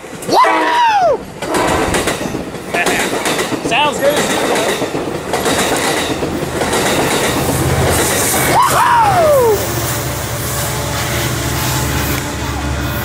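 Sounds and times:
train rail clatter: 0.0s - 8.6s
rising and falling call: 8.4s - 9.8s.

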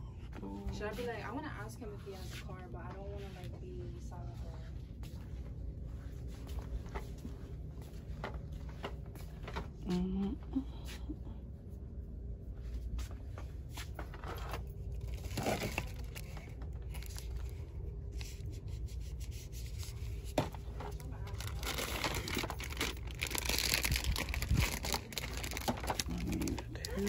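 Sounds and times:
steady low hum: 0.0s - 27.0s
plastic packaging rustling: 13.9s - 18.9s, 19.6s - 27.0s.

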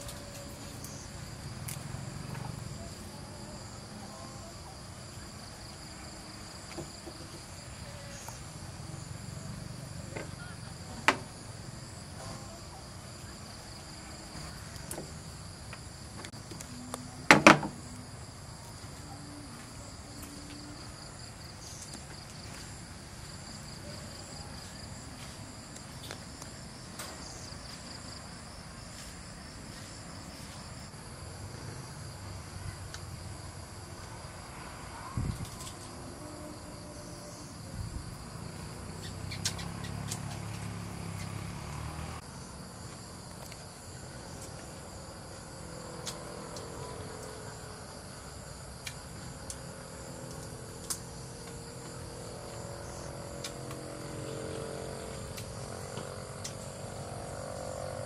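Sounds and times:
night insects chirring: 0.0s - 58.0s.

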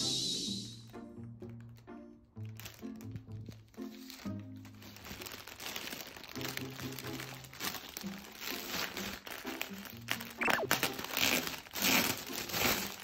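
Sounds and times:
plastic bag crinkling and rustling: 2.4s - 13.0s.

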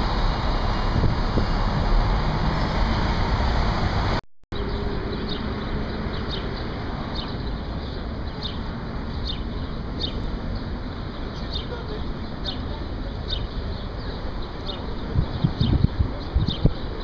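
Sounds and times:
city traffic noise: 0.0s - 17.0s
street background: 0.0s - 17.0s
small birds chirping: 4.6s - 17.0s.

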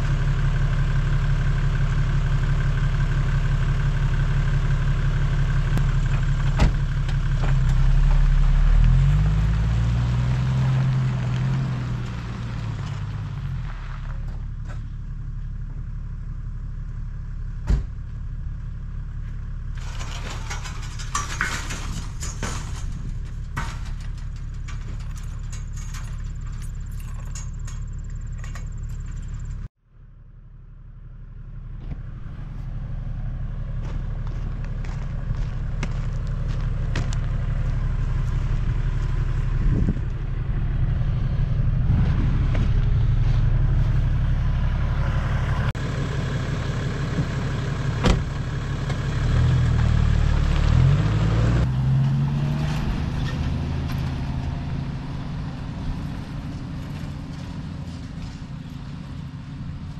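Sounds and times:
car engine idling: 0.0s - 51.2s
metal gate clanking and rattling: 19.7s - 29.7s.

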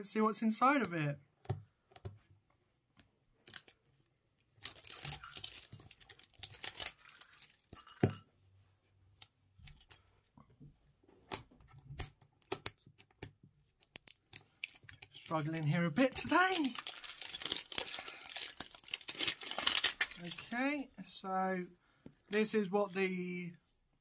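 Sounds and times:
plastic shrink-wrap crackling and tearing: 4.6s - 7.7s, 13.9s - 20.6s.

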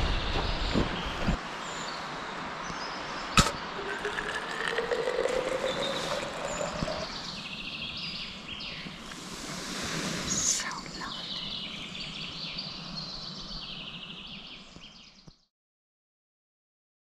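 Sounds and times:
steady outdoor hiss: 0.0s - 15.3s
birds calling: 2.7s - 9.4s.

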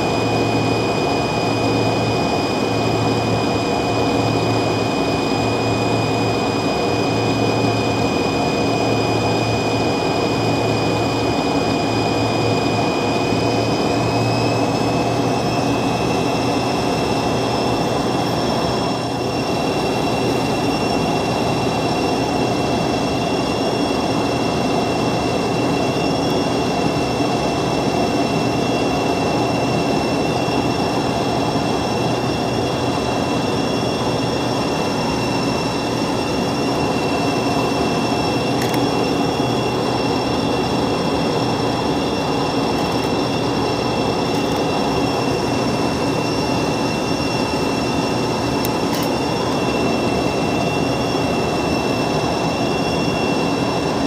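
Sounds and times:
cabin rush of engine noise: 0.0s - 54.0s
high engine whine: 0.0s - 54.0s.

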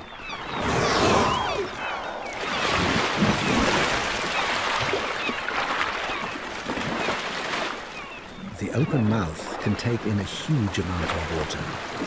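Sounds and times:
seawater splashing and rushing: 0.4s - 12.0s.

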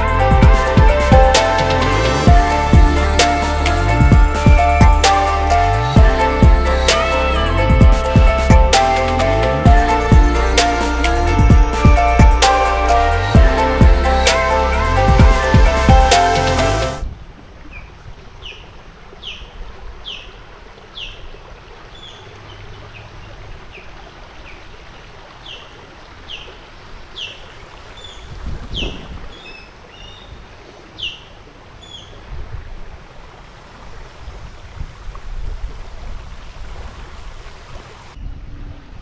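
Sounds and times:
songbird calling: 17.6s - 32.3s.

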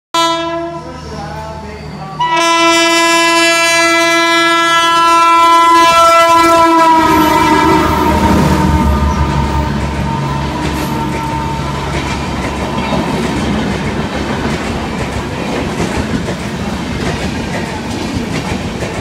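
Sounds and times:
locomotive horn blast: 0.1s - 1.0s, 2.2s - 13.2s
train rushing past: 0.2s - 19.0s.

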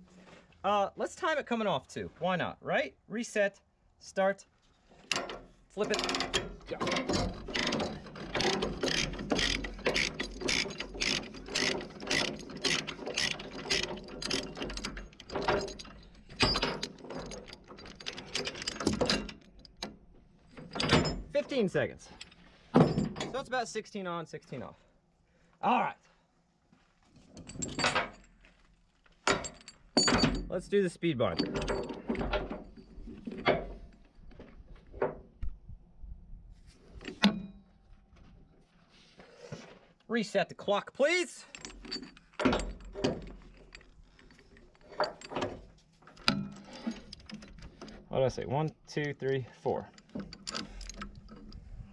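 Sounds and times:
chain and load binder clanking: 5.0s - 23.6s, 27.1s - 35.3s, 36.8s - 37.6s, 41.0s - 51.9s
ratchet pawl clicking: 8.4s - 14.4s.

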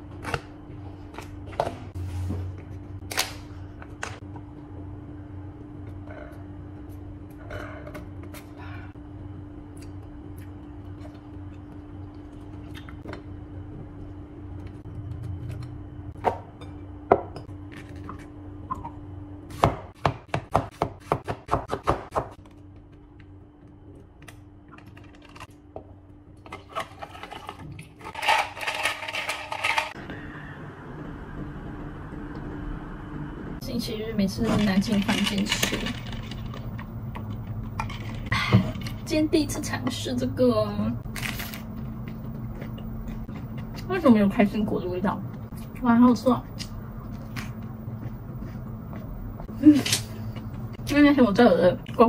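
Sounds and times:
low hum: 0.0s - 19.5s, 22.4s - 52.0s
knife chopping on cutting board: 19.5s - 22.4s.

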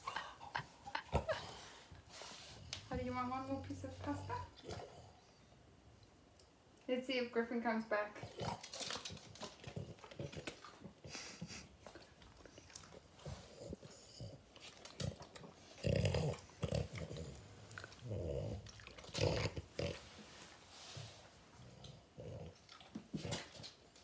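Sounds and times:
dog grunting: 15.0s - 20.2s
dog chewing wetly: 21.8s - 24.0s.

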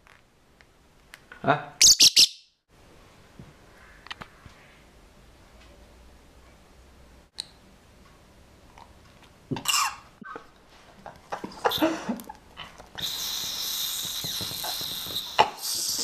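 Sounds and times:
bird squawking and chattering: 1.8s - 2.4s
bird raspy hiss: 13.0s - 16.0s.

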